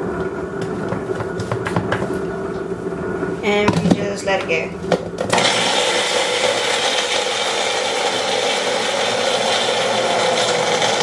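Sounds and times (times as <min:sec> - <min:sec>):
blender running: 0:05.2 - 0:11.0.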